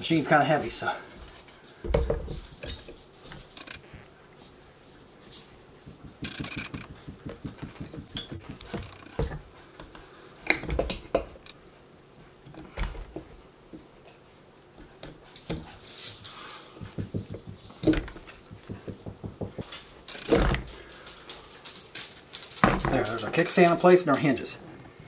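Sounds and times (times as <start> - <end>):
light knocks and rattles: 16.7 - 21.0.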